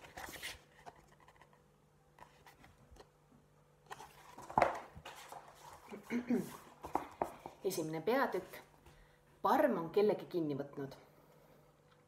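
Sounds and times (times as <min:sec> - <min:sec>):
book pages rustling: 0:00.0 - 0:03.2, 0:03.9 - 0:07.8.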